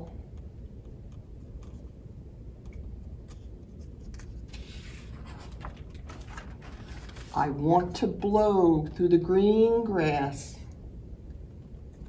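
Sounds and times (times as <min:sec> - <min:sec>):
low room hum: 0:00.0 - 0:12.0
book page rustling: 0:03.2 - 0:07.4.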